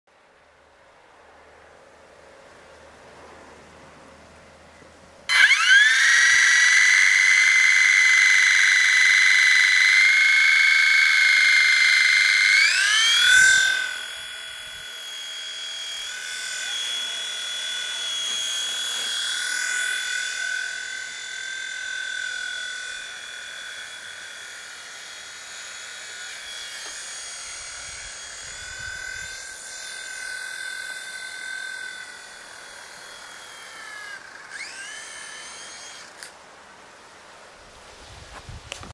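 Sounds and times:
toy helicopter motor whining: 5.3 - 36.4.

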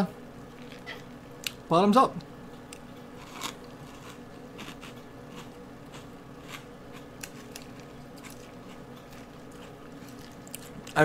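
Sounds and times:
chewing and crunching cereal: 0.5 - 1.6, 2.7 - 11.0.

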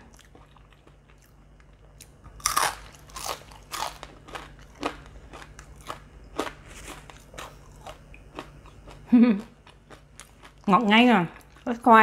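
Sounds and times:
crunchy fried food being chewed: 0.0 - 11.8.

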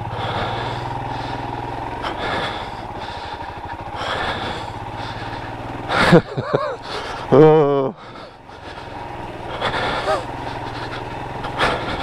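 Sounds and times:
motorcycle engine at low revs: 0.0 - 12.0
riding noise: 0.0 - 12.0.

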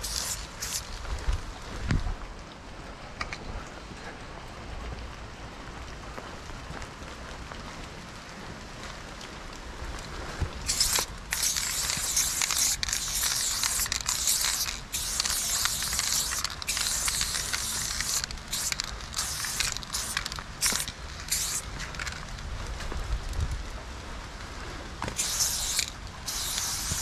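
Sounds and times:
spray paint can hissing: 0.0 - 1.0, 10.6 - 22.2, 25.1 - 27.0.

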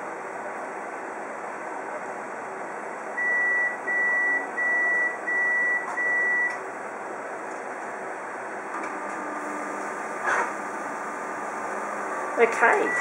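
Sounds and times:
copier whirring: 0.0 - 13.0
high beeps: 3.2 - 6.6, 12.8 - 13.0.

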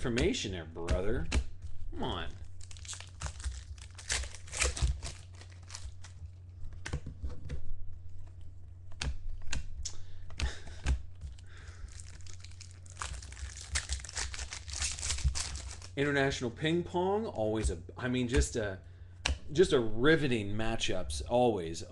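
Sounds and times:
cards clicking and tapping: 0.0 - 1.8, 8.9 - 11.4, 19.2 - 19.5
steady low hum: 0.0 - 21.9
foil packs crinkling and tearing: 2.1 - 6.4, 11.3 - 16.0.

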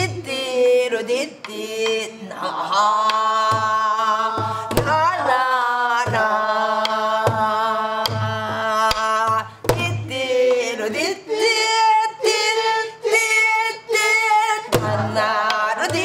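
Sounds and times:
woman singing wordless long notes: 0.0 - 16.0
barrel drum thumps and stick cracks: 14.7 - 16.0.

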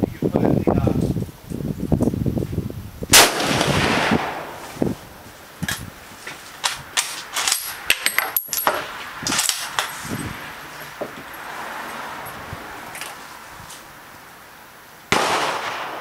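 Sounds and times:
rifle shot echoing: 3.1 - 4.6, 15.1 - 16.0.

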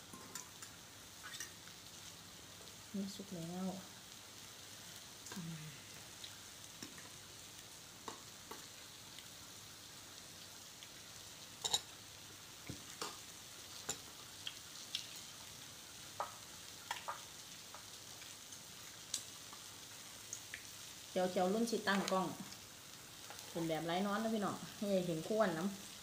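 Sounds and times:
meat sizzling on a grill pan: 0.0 - 26.0
cutlery clinking against bowls: 0.1 - 0.8, 11.6 - 11.9.

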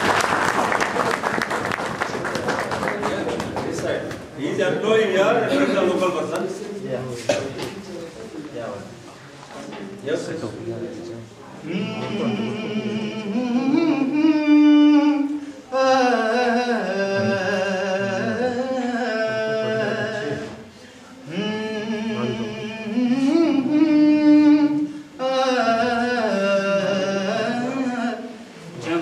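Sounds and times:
man singing unaccompanied: 11.6 - 29.0.

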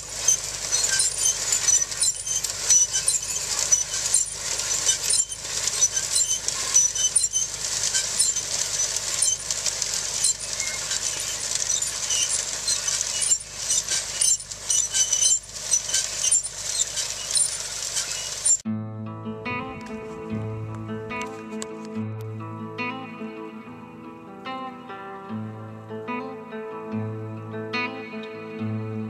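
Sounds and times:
grain drill clinking and rattling: 0.0 - 18.6
tractor engine running: 0.0 - 18.6.

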